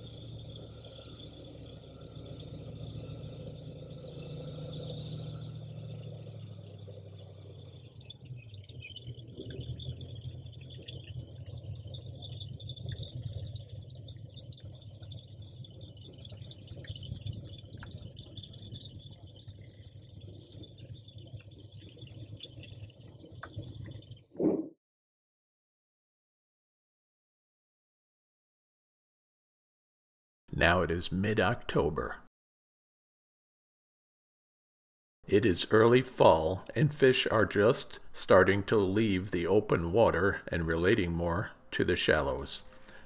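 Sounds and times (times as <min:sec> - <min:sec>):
airboat engine and propeller drone: 0:00.0 - 0:24.3, 0:35.3 - 0:43.0.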